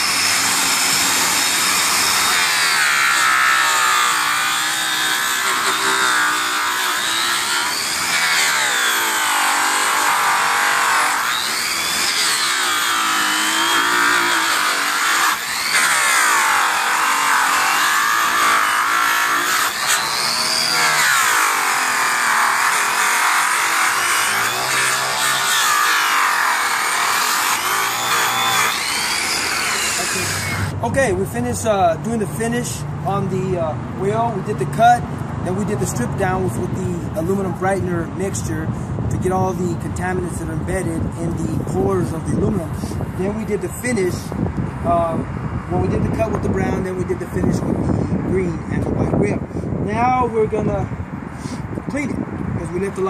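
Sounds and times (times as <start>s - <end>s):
rotary polisher whining: 0.0s - 30.8s.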